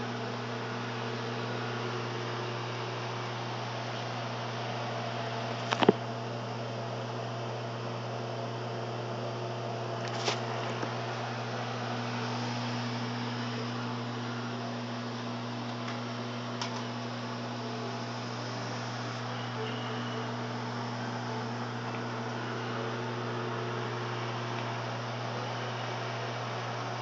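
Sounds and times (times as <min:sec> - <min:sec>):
microwave hum and fan: 0:00.0 - 0:27.0.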